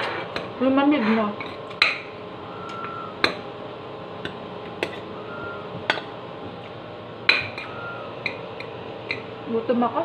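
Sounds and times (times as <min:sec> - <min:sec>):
metal spoon clinking on plate: 0:04.2 - 0:05.1, 0:05.9 - 0:06.1, 0:07.3 - 0:09.3.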